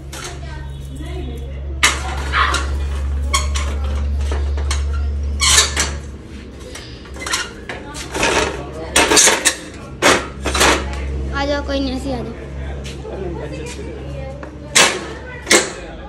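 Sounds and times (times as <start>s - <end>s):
metal ladder clanking: 1.8s - 6.1s, 7.2s - 10.9s.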